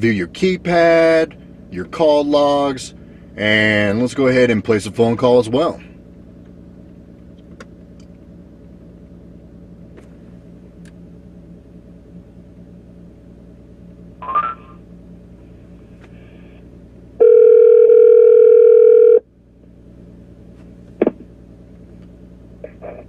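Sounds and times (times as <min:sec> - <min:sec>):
low steady cabin hum: 0:00.0 - 0:23.0
telephone ringback tone: 0:17.2 - 0:19.2.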